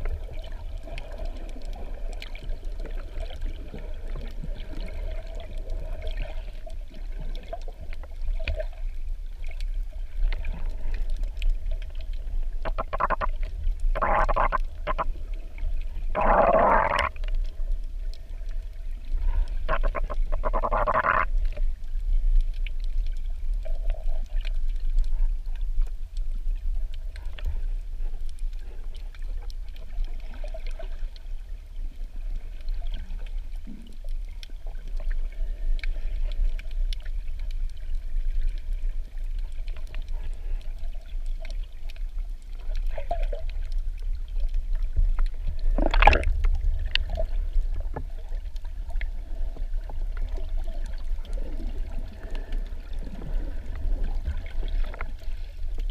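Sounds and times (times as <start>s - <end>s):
underwater low rumble: 0.0s - 55.9s
bursts of water noise: 9.4s - 23.6s, 42.7s - 55.9s.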